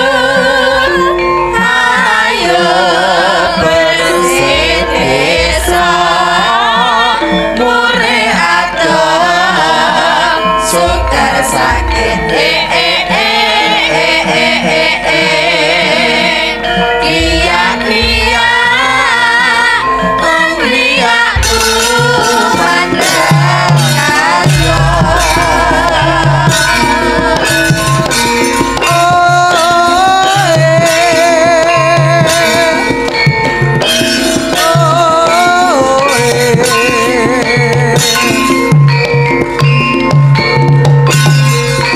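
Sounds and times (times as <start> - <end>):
drum strokes: 0.0 - 41.9
person singing wavering melody: 0.0 - 41.9
kettle gongs struck: 23.0 - 29.4.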